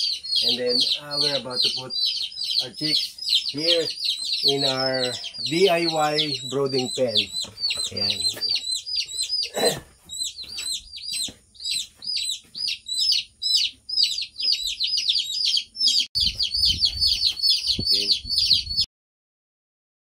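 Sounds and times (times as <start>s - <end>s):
chicks peeping: 0.0s - 18.9s.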